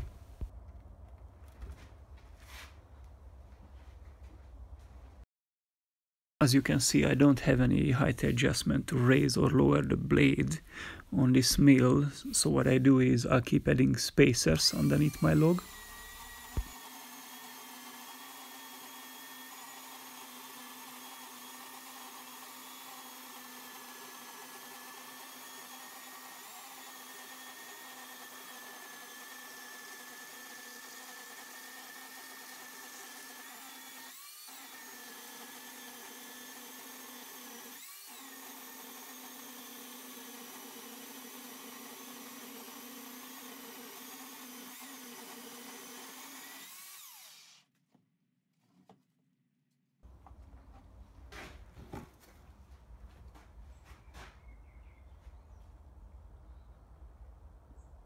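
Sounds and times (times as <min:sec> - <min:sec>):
electric chainsaw cutting log: 0:14.5 - 0:47.7.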